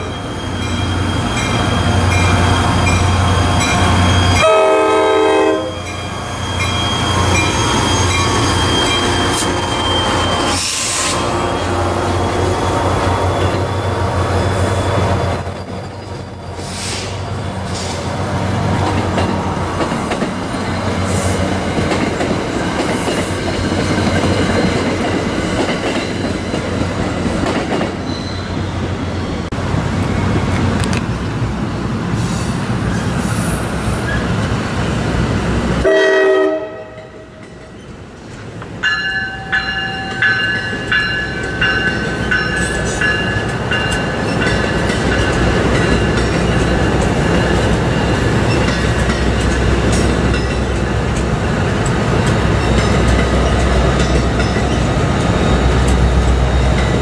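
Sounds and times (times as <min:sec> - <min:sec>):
wheels squealing: 0:00.0 - 0:04.5, 0:05.7 - 0:24.4, 0:27.8 - 0:30.7, 0:32.2 - 0:34.8
train wheels rumbling on rail: 0:00.0 - 0:57.0.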